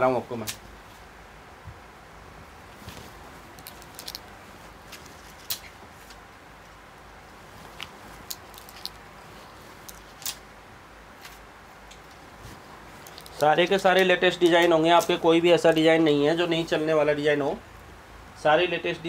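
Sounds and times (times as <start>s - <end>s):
room hum: 0.0s - 19.0s
clothes hangers clicking: 9.8s - 10.4s.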